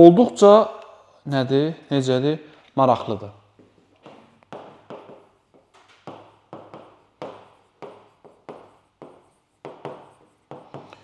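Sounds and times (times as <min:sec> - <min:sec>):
stylus tapping and scratching screen: 0:03.5 - 0:11.0.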